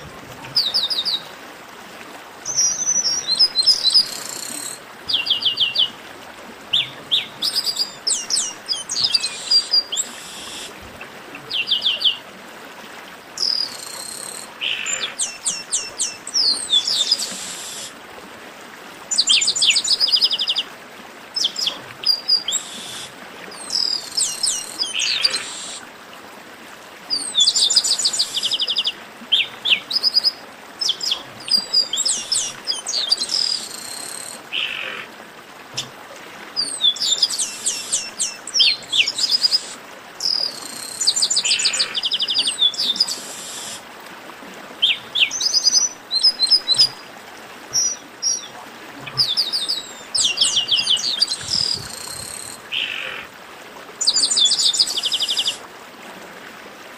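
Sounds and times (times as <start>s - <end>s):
faint steady hiss: 0.0s - 56.9s
blackbird song: 6.7s - 10.7s, 13.4s - 17.9s, 36.6s - 43.8s, 44.8s - 47.0s, 47.7s - 53.2s.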